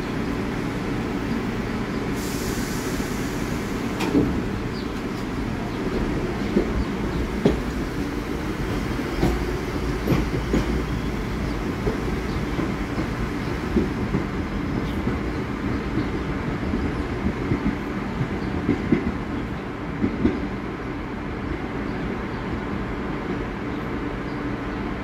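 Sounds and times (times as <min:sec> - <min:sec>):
subway train running: 0:00.0 - 0:25.0.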